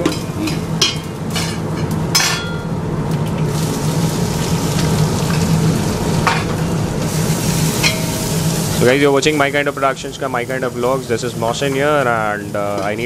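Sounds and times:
oil sizzling in pot: 0.0s - 13.0s
steady low hum: 0.0s - 13.0s.

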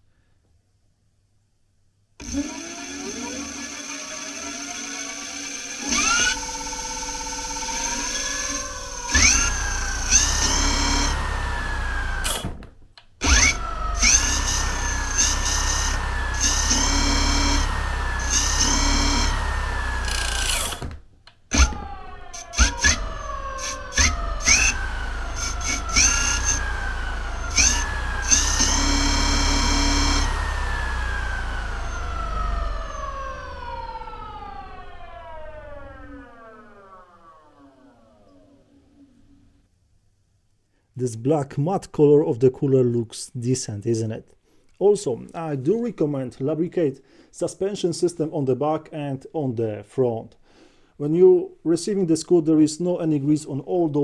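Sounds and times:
electric motor whine: 2.2s - 12.5s, 13.2s - 20.9s, 21.5s - 39.4s.

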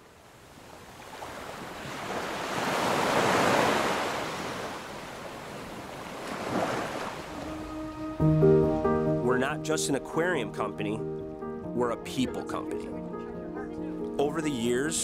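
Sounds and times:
ocean waves rushing: 0.5s - 9.7s.

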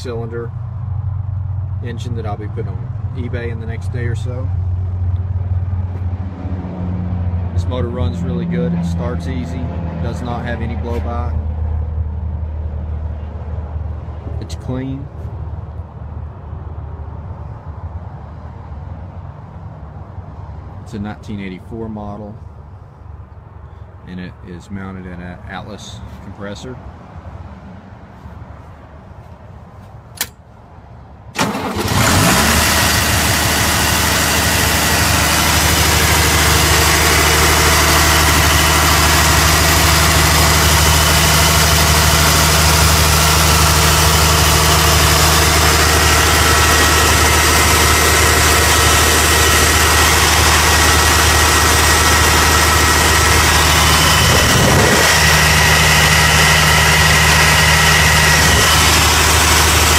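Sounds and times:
diesel engine starting and idling: 31.3s - 59.9s.

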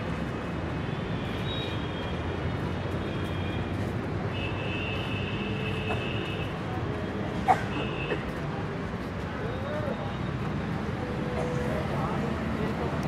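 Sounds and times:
street traffic rumble: 0.0s - 13.0s.

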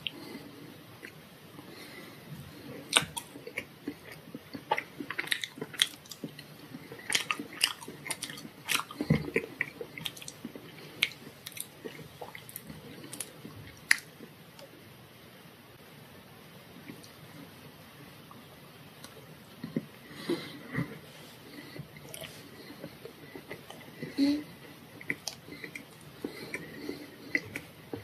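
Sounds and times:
chewing: 2.8s - 14.1s, 19.0s - 28.0s.

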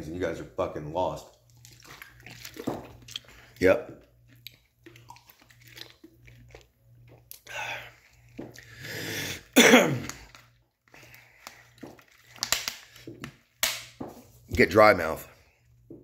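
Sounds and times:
man coughing and clearing throat: 9.4s - 10.2s.

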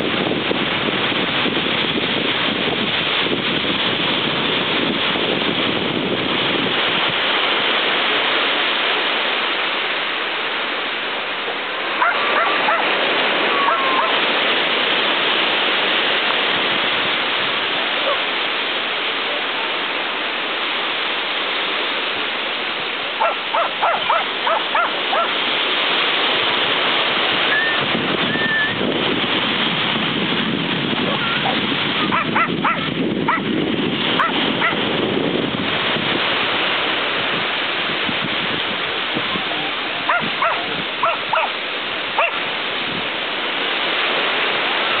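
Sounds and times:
surf rushing: 0.0s - 45.0s
small dog yapping: 12.0s - 12.9s, 13.5s - 14.2s, 23.2s - 25.3s, 31.1s - 33.4s, 34.2s - 34.8s, 40.0s - 41.5s, 42.2s - 42.4s.

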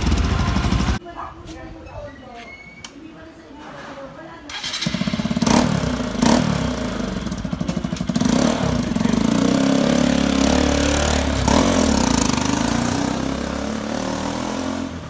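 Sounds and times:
motorcycle engine idling and pulling away: 0.0s - 1.0s, 4.5s - 15.0s.

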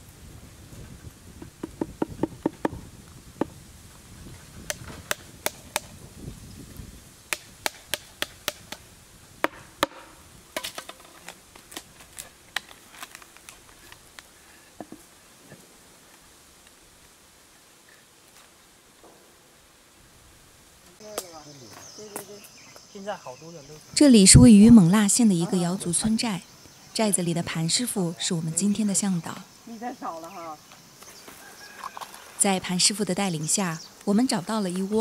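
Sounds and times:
sharp knocks and taps: 1.4s - 2.8s.

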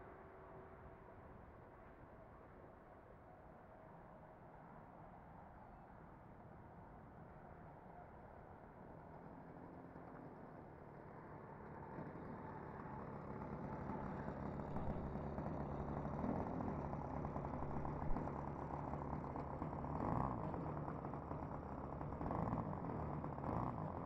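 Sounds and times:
model airplane engine idling: 11.0s - 24.0s.

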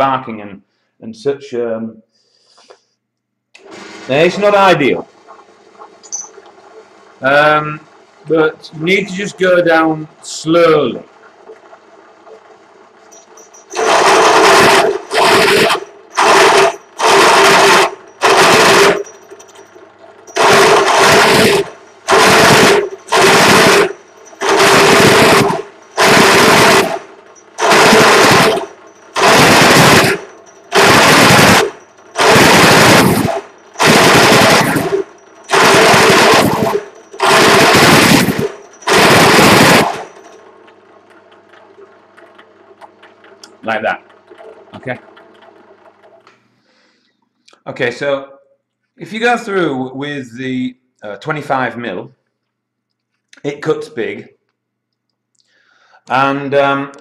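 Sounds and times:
drill motor humming: 3.6s - 5.0s, 11.0s - 40.5s
drill press cutting metal: 3.6s - 5.1s, 5.7s - 42.5s.

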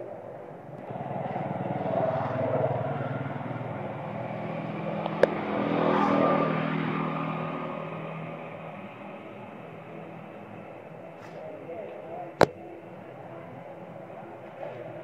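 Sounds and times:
vehicle engine humming: 1.0s - 11.2s.

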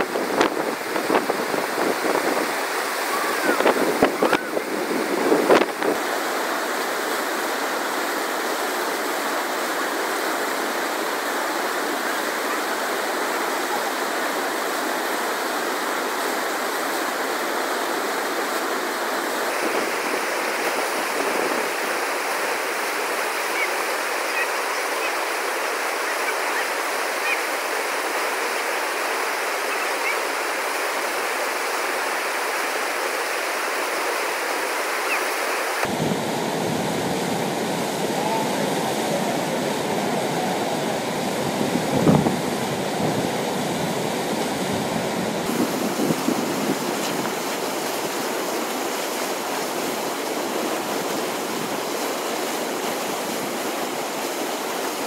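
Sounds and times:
whitewater rushing: 0.0s - 55.0s
wind buffeting microphone: 3.2s - 6.0s, 35.8s - 38.8s, 39.4s - 48.0s.

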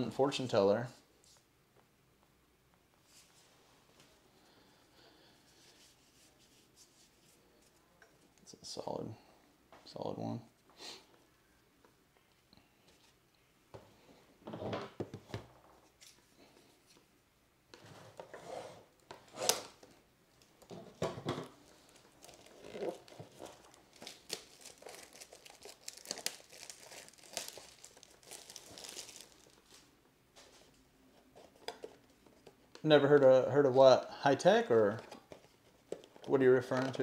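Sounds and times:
packaging crinkling and tearing: 21.6s - 29.9s.

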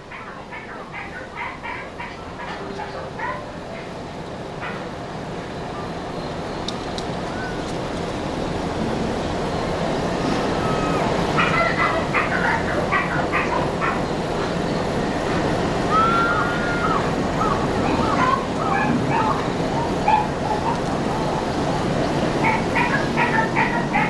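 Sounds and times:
steady rushing background noise: 0.0s - 24.0s
dogs yipping and barking: 0.1s - 4.0s, 10.4s - 24.0s
dog whining: 10.6s - 12.6s.

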